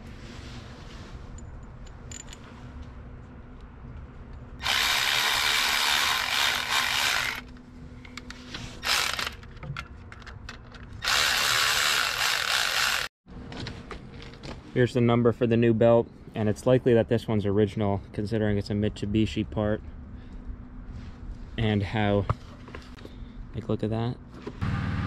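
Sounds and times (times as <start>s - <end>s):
power driver running bolts: 4.6s - 7.6s, 8.8s - 9.6s, 10.2s - 13.1s.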